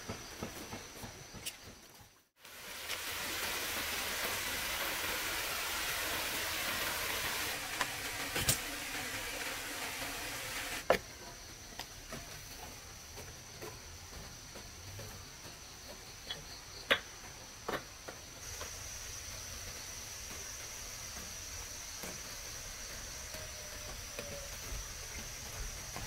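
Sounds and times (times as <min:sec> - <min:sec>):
water rushing over a spillway: 0:02.4 - 0:10.9
insects chirring: 0:06.2 - 0:26.0.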